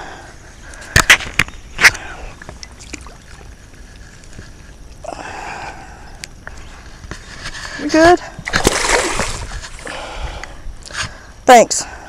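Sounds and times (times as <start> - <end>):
low outdoor noise: 0.0 - 12.0
fish slapping and knocking: 8.4 - 9.8.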